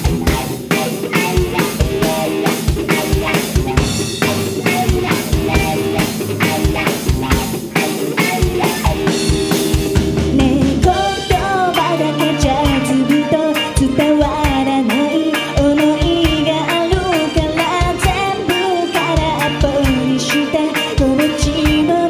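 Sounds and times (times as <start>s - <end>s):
live rock band playing: 0.0s - 22.0s
woman singing: 10.3s - 22.0s.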